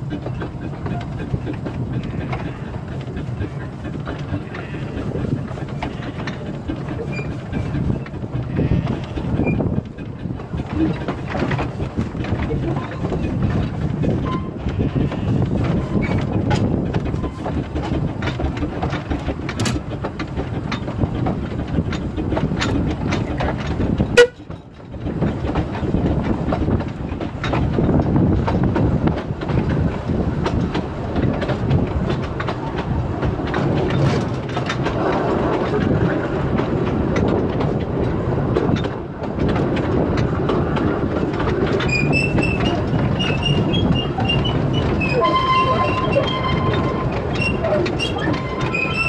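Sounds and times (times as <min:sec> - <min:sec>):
steam locomotive rumble: 0:00.0 - 0:49.0
wheels clicking over track: 0:00.0 - 0:49.0
high squeaks: 0:41.8 - 0:49.0.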